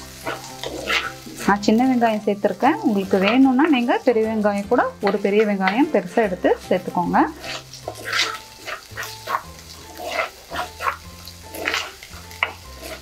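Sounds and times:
food frying in oil: 0.0 - 13.0
soft background music: 0.0 - 13.0
spoon scraping a clay pot: 0.2 - 1.2, 7.4 - 13.0.

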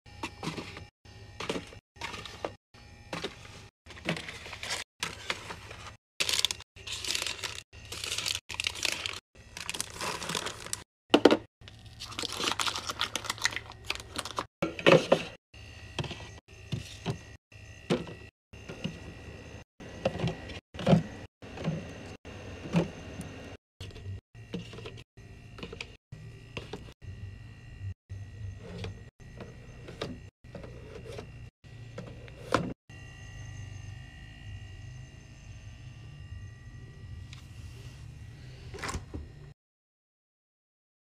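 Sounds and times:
plastic cups and bottles clattering: 0.2 - 15.4
packaging crinkling: 4.1 - 10.8, 11.7 - 14.5.

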